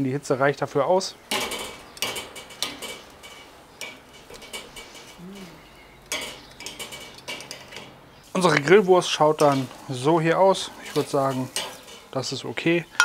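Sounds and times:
sausages sizzling on a grill: 0.0 - 13.0
sharp clicks and knocks: 1.3 - 5.2.

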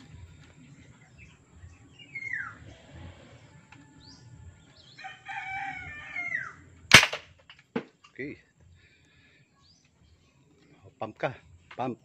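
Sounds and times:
rooster crowing: 4.9 - 6.6.

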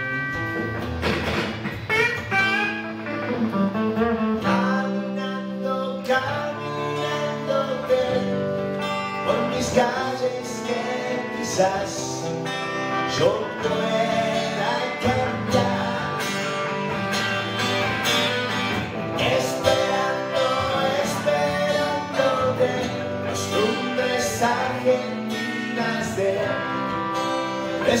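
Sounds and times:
acoustic guitar strumming: 0.0 - 28.0
electric guitar through amplifier: 0.0 - 28.0
man singing into a microphone: 4.4 - 16.7, 19.2 - 28.0.

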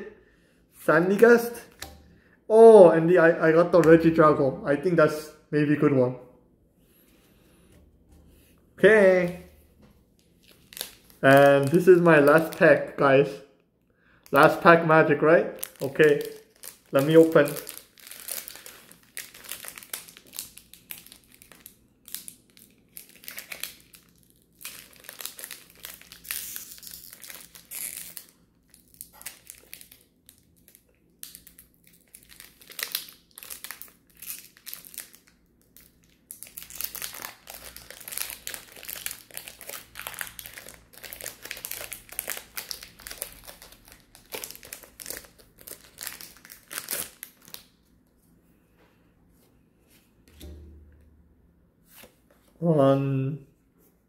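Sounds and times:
foil wrapper crinkling: 10.2 - 12.7, 15.6 - 47.8.

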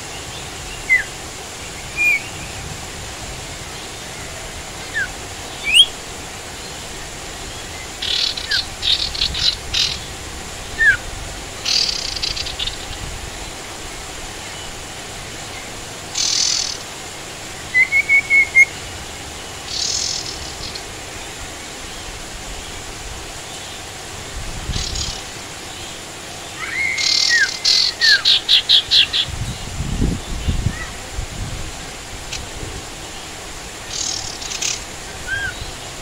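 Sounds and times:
songbirds chirping: 0.0 - 31.1, 31.9 - 36.0
bird trill: 4.8 - 6.0, 11.6 - 13.0, 16.2 - 16.9, 26.6 - 29.3.

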